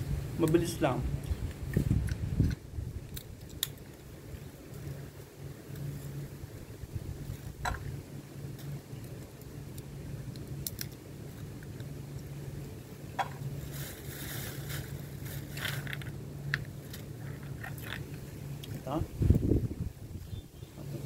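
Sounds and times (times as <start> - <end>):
steady low hum: 0.0 - 21.0
walnut shell cracking: 2.0 - 4.0, 8.6 - 12.3.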